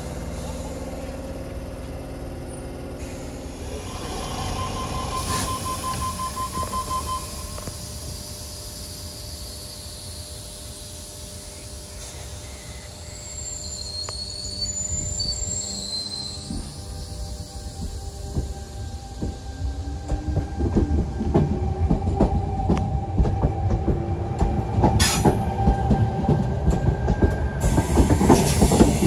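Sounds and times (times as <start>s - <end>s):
electric train equipment running: 0.0s - 29.0s
train whine pulling away: 0.0s - 29.0s
door-closing warning beeps: 4.2s - 8.0s.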